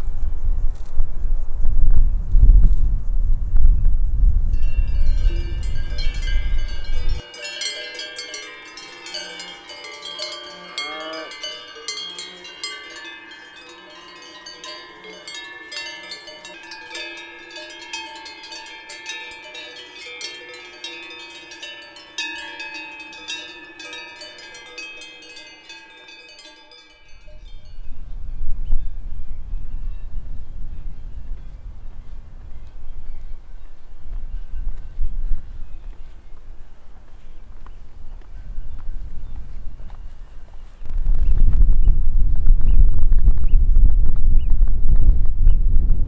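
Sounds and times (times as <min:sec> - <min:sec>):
cowbells clanking: 0:04.6 - 0:28.0.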